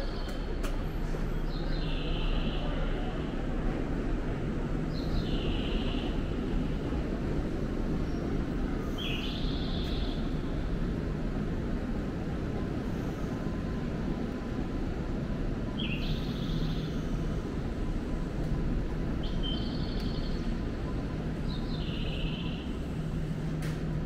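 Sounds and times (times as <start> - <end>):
station platform rumble: 0.0 - 24.0.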